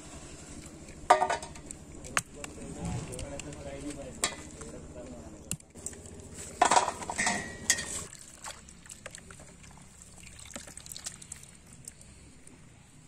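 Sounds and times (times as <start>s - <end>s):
water drips and clicks: 0.6s - 6.2s, 7.7s - 12.1s
water splashing in a pot: 5.6s - 12.2s.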